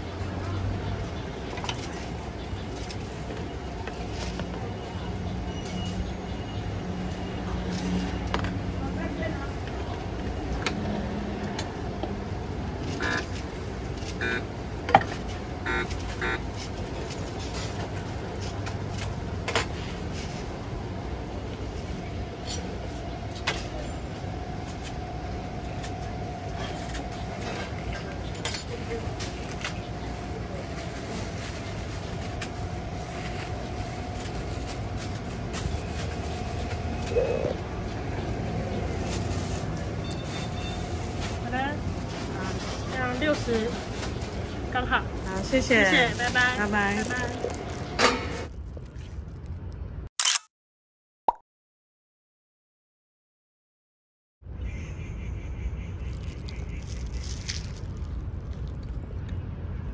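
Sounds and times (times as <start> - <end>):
street traffic rumble: 0.0 - 50.1, 54.4 - 59.9
plastic bag crinkling: 45.9 - 49.6, 56.0 - 59.2.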